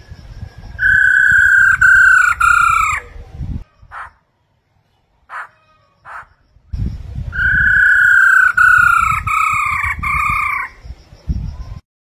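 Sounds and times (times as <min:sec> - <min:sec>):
bird whistling long clear notes: 0:00.7 - 0:03.0, 0:06.9 - 0:10.8.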